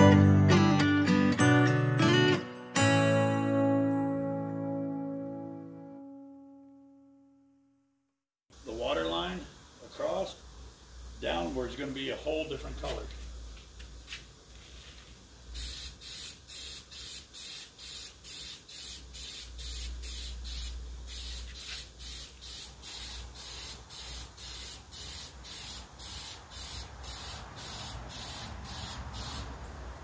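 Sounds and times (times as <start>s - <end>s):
spray paint can hissing: 12.7s - 29.7s.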